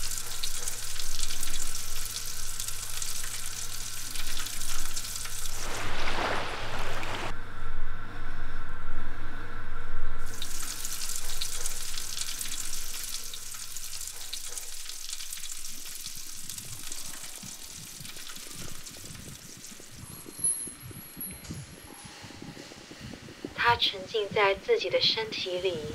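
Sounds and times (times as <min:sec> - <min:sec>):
sizzling hiss with crackles: 0:00.0 - 0:07.3, 0:10.2 - 0:24.2.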